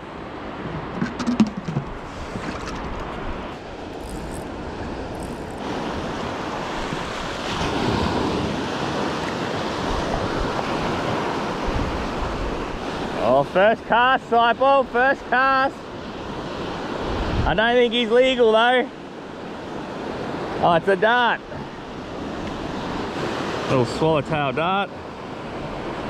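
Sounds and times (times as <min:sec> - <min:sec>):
waves breaking on beach: 0:00.0 - 0:26.0
wind on microphone: 0:00.6 - 0:13.1, 0:16.2 - 0:17.6.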